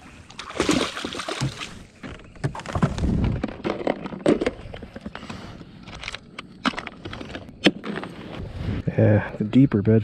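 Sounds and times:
fish splashing into water: 0.4s - 1.8s.

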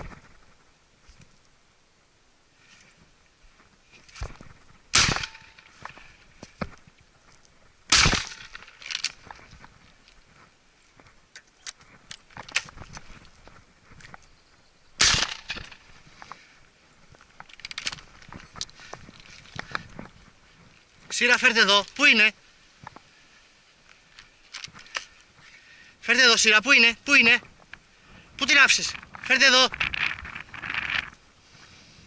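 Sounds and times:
sharp bangs: 4.9s - 5.8s, 7.9s - 8.8s, 15.0s - 15.9s.

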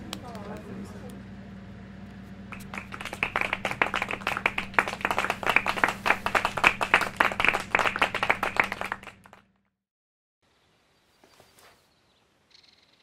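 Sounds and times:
people clapping: 2.5s - 9.5s.

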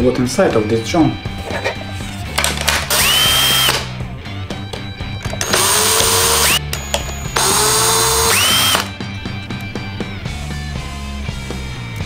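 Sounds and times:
cordless drill unscrewing: 5.3s - 8.9s.

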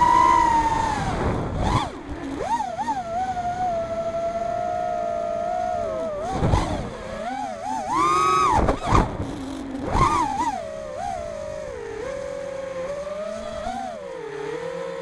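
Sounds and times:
rushes of air noise: 0.0s - 2.4s
drone motors whining: 0.0s - 15.0s.

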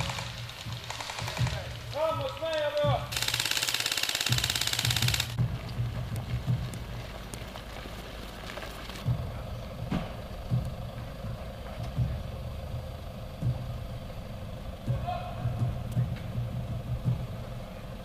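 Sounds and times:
full-auto airsoft fire: 0.0s - 1.8s, 3.1s - 5.4s
low rumble: 4.4s - 18.0s.

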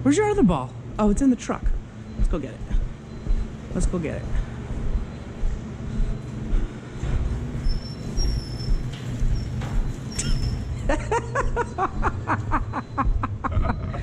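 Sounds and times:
steady low rumble: 0.0s - 14.0s
man laughing hard: 10.8s - 14.0s.

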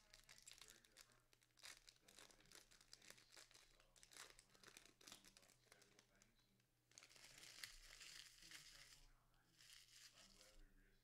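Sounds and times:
foil wrapper crinkling and tearing: 0.0s - 6.0s, 7.0s - 9.0s.

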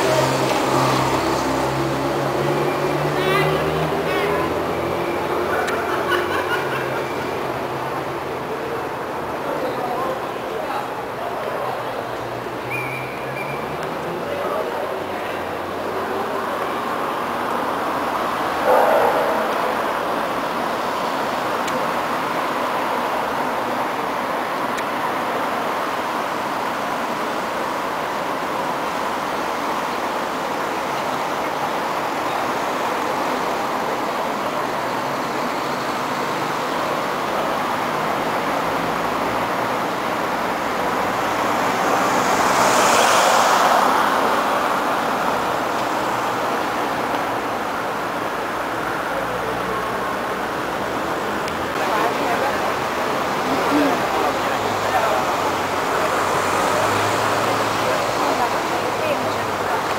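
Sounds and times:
hum of passing cars: 0.0s - 59.9s
car passing close: 15.3s - 22.6s, 36.0s - 59.9s.

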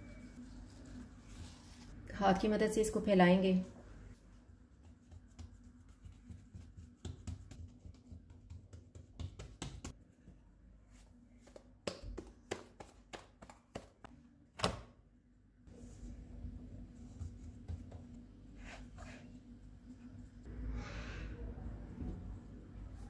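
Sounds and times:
hands patting dough on wood: 4.7s - 10.0s, 11.4s - 14.1s, 17.1s - 18.2s.

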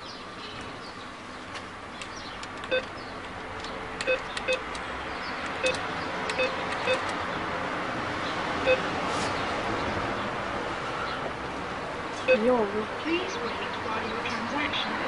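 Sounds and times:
traffic noise: 0.0s - 15.0s
keypad beeps: 2.7s - 2.9s, 4.0s - 4.6s, 5.6s - 7.1s.

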